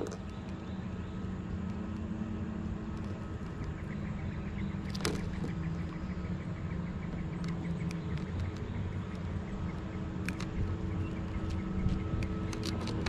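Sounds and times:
boat engine humming: 0.0s - 13.0s.

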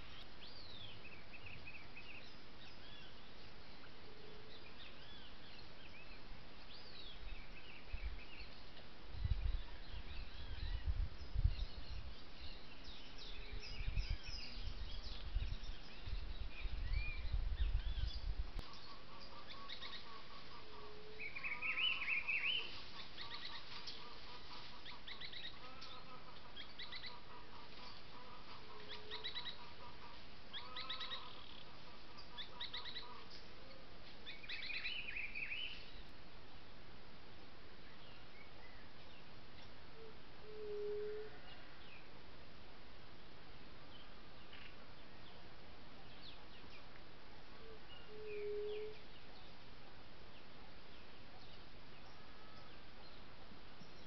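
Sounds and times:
birds chirping and warbling: 0.0s - 36.2s, 37.8s - 42.3s, 43.2s - 54.0s.

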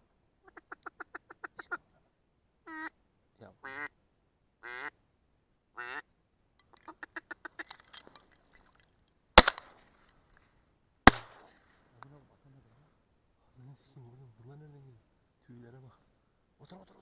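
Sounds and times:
shotgun shots: 9.4s - 9.9s, 11.1s - 11.6s.

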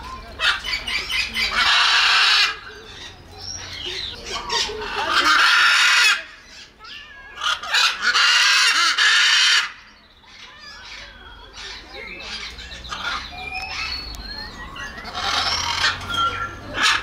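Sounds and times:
macaw squawking: 0.4s - 17.0s.

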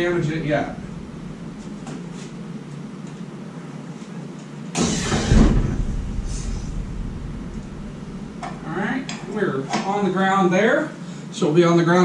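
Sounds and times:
heavy clunk and low rumble: 0.0s - 3.3s, 4.8s - 9.6s
low steady hum: 0.0s - 11.2s.

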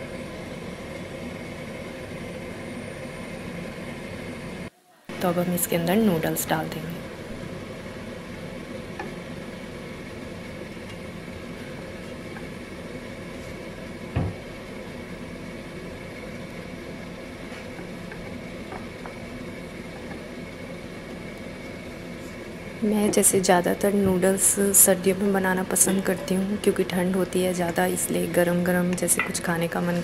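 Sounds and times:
spoon knocking pot: 28.9s - 29.5s
spoon tapping pot: 28.9s - 29.5s.

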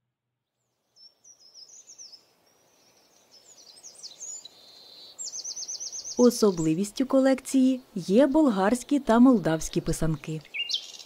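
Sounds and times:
songbird chirping: 0.5s - 11.0s
soft hiss: 0.8s - 11.0s.

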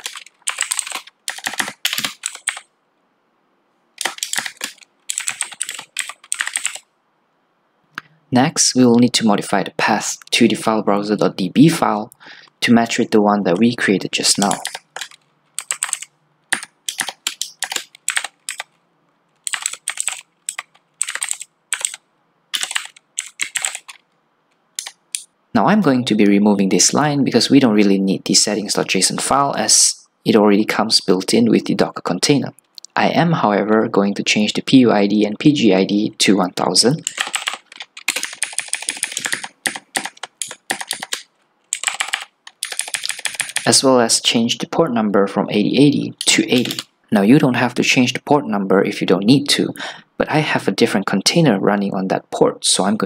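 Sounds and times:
typing on computer keyboard: 0.0s - 2.7s, 4.0s - 6.9s, 14.4s - 18.8s, 19.4s - 24.0s, 24.8s - 25.3s, 37.0s - 43.8s, 46.6s - 46.9s.

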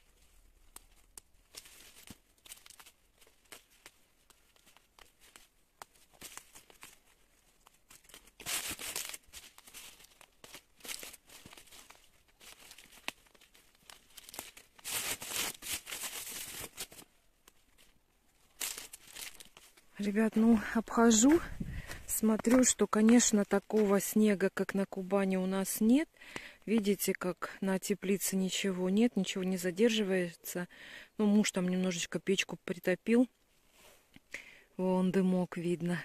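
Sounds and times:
leaves rustling against plastic: 0.0s - 24.6s.

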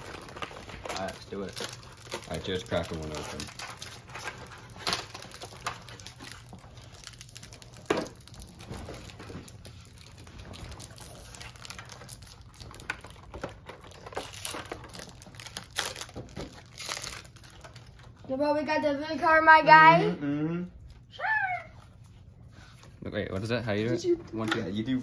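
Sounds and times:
wrapper crinkling: 0.0s - 18.2s.

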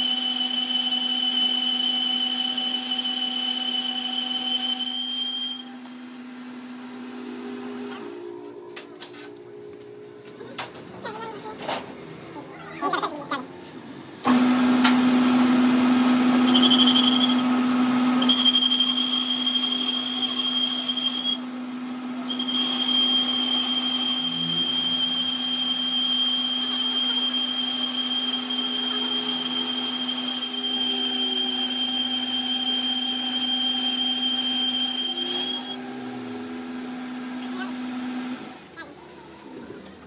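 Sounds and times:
metal lathe humming: 14.3s - 35.8s
high-pitched whine: 22.3s - 35.8s.

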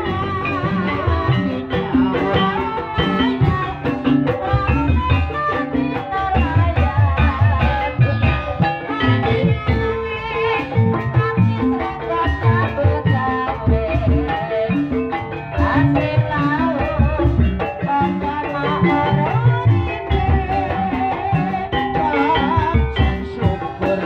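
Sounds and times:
drums beating: 0.0s - 24.0s
person singing: 0.0s - 24.0s.

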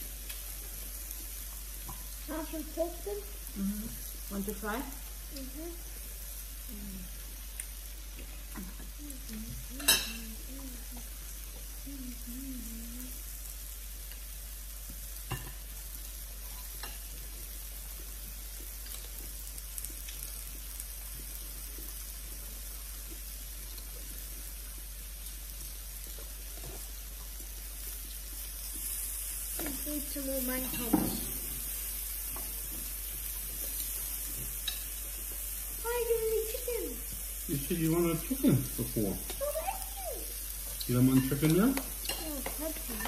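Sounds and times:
skewers sizzling on grill: 0.0s - 43.0s
utensils clicking on pan: 9.8s - 10.3s, 33.6s - 35.0s, 40.7s - 43.0s.

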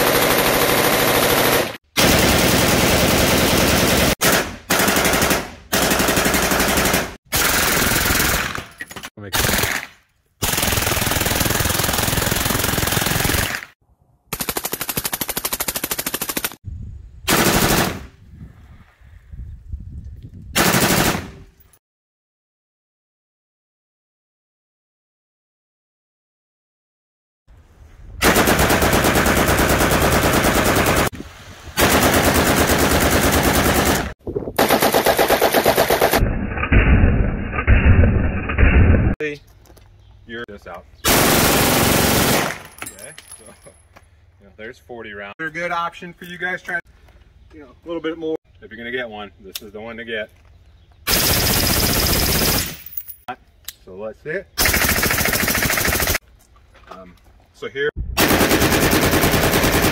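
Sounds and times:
rifles firing full-auto bursts: 0.0s - 8.7s, 9.4s - 13.7s, 20.6s - 21.3s, 28.2s - 31.1s, 31.8s - 36.2s, 41.1s - 42.7s, 51.1s - 52.9s, 54.6s - 56.2s, 58.2s - 59.9s
machine gun bursts: 51.1s - 52.9s, 54.6s - 56.2s, 58.2s - 59.9s.

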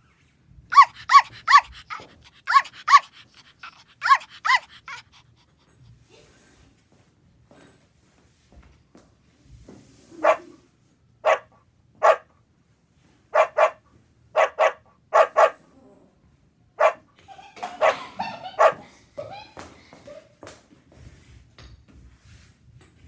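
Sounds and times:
dog barking: 0.7s - 3.2s, 4.0s - 5.0s, 10.2s - 10.5s, 11.2s - 12.3s, 13.3s - 13.8s, 14.4s - 15.6s, 16.8s - 17.1s, 17.8s - 18.8s.

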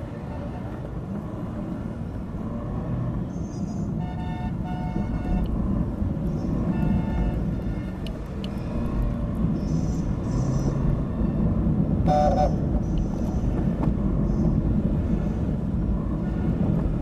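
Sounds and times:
road traffic rumbling: 0.0s - 17.0s
vehicle horns honking: 3.9s - 5.6s, 6.6s - 8.1s, 12.1s - 12.7s.

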